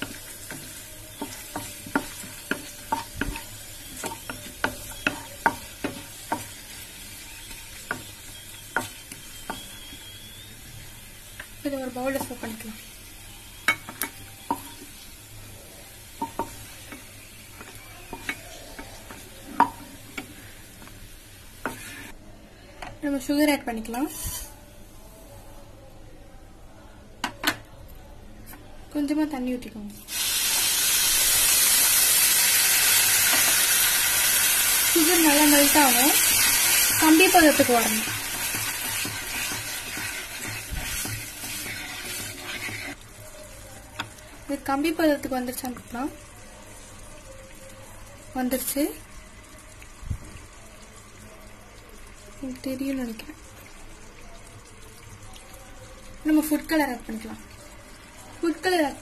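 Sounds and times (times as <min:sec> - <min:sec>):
frying sizzle: 0:00.0 - 0:22.2, 0:29.1 - 0:59.0
wooden spatula knocking on pan: 0:04.0 - 0:06.5
wooden spatula scraping a pan: 0:21.6 - 0:22.2, 0:24.0 - 0:24.6, 0:38.1 - 0:43.0.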